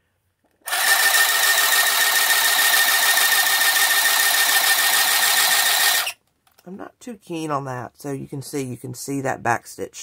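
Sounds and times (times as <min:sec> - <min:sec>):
handheld sewing machine stitching: 0:00.6 - 0:06.2.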